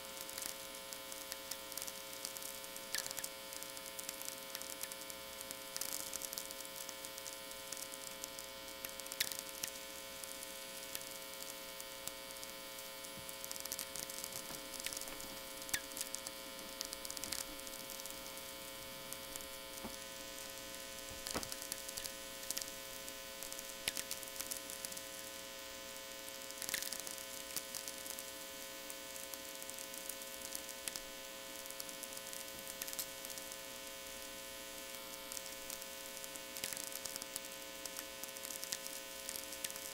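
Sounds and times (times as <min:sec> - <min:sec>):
mains hum buzz: 0:00.0 - 0:39.9
crackling radio clicks: 0:00.2 - 0:25.0, 0:26.5 - 0:28.2.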